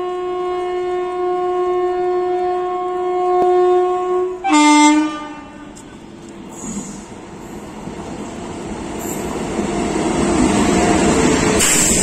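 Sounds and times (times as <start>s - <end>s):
locomotive air horn blasts: 0.0s - 5.8s.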